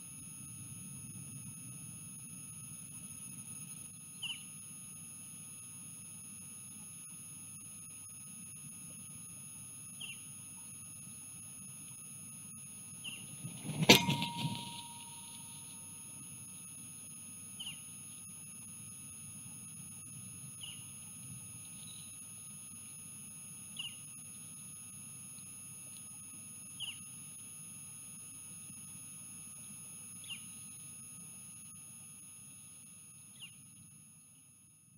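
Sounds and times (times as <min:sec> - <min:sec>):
wing and stick noise: 0:13.1 - 0:15.6
wing striking metal pole bang: 0:13.3 - 0:15.7
metallic ring: 0:13.3 - 0:16.0.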